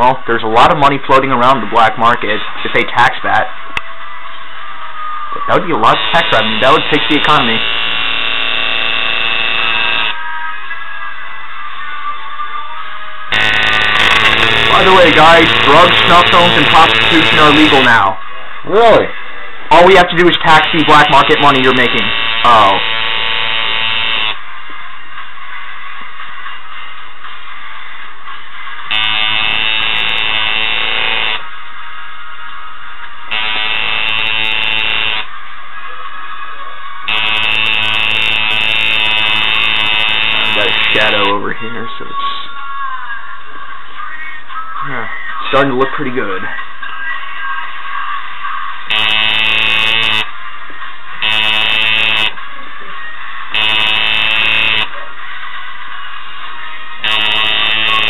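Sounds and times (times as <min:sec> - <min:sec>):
tattoo machine buzzing: 0:05.9 - 0:10.2, 0:13.3 - 0:17.9, 0:20.5 - 0:24.4, 0:28.9 - 0:31.4, 0:33.3 - 0:35.3, 0:37.1 - 0:41.3, 0:48.9 - 0:50.3, 0:51.2 - 0:52.4, 0:53.6 - 0:54.9, 0:57.0 - 0:58.0.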